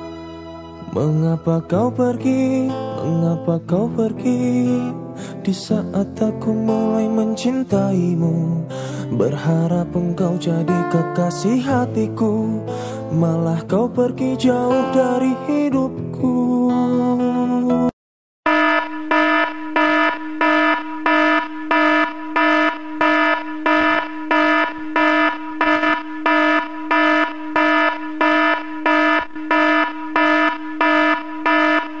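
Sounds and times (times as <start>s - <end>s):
song playing: 0.0s - 4.1s
electronic alarm buzzing: 18.5s - 32.0s.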